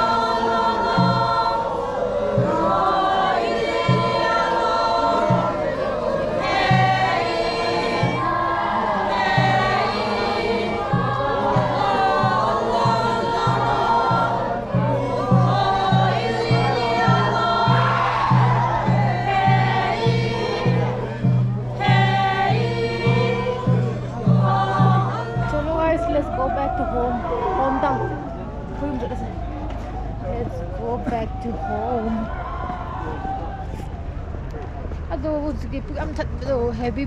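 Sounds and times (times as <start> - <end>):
group singing in chorus: 0.0 - 28.7
steady low beat: 0.0 - 35.2.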